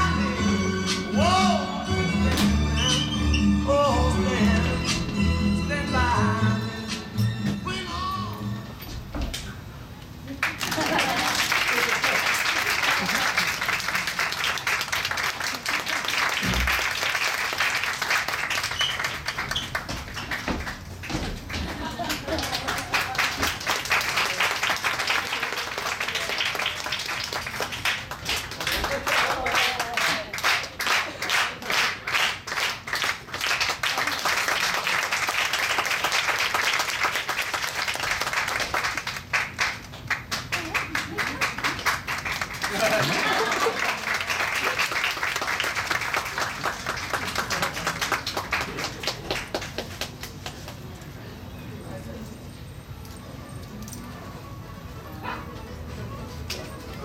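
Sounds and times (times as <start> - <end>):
audience applauding: 10.3 - 50.9.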